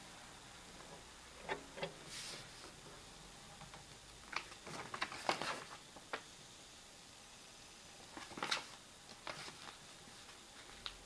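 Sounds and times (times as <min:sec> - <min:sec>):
paper crackling: 0:04.3 - 0:06.2, 0:08.1 - 0:11.0.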